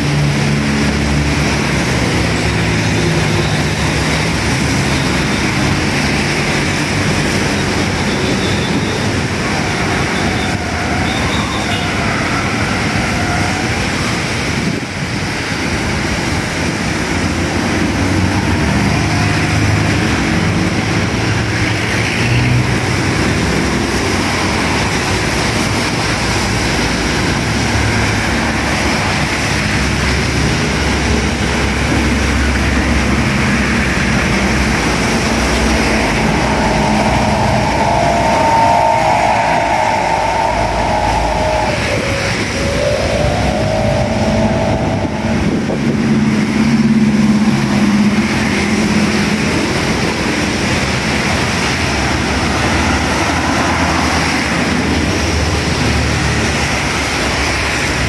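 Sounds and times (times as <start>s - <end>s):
traffic passing: 0.0s - 58.0s
tyres hissing on wet road: 0.0s - 58.0s
heavy truck engine rumble: 22.5s - 58.0s.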